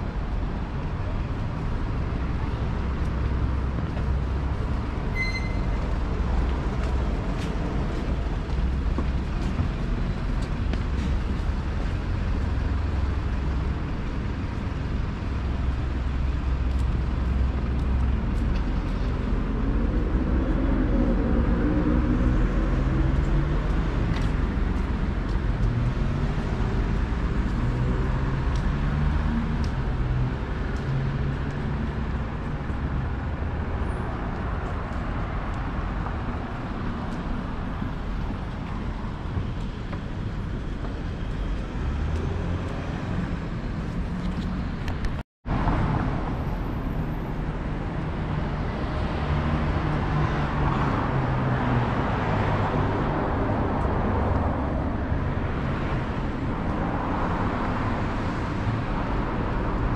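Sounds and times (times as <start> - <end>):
traffic rumble: 0.0 - 59.9
short high beep: 5.1 - 5.7.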